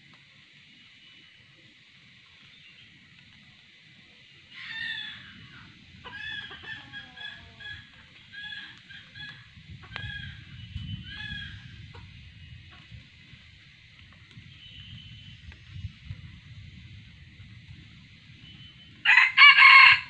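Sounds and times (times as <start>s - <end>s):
junglefowl crowing call: 4.5s - 12.1s, 19.0s - 20.0s
junglefowl clucking: 4.5s - 13.0s.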